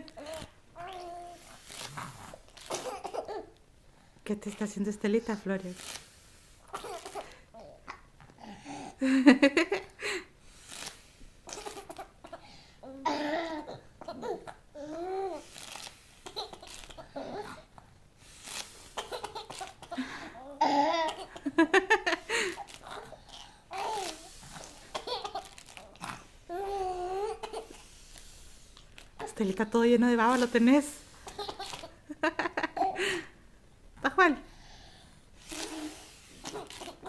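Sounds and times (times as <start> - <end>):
baby laughing and babbling: 2.7 - 3.6, 11.5 - 15.4, 19.0 - 21.3.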